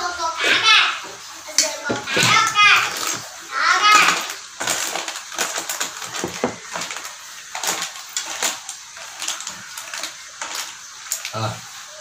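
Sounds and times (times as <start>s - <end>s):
clatter of hard objects: 1.8s - 11.4s.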